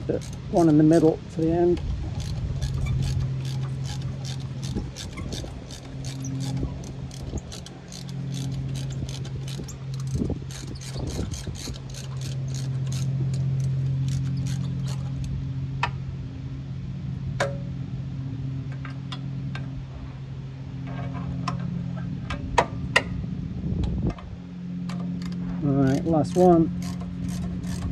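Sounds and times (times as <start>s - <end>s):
ratchet wrench clicking: 0.0s - 0.5s, 1.8s - 15.3s, 24.9s - 27.9s
steady low hum: 0.0s - 27.9s.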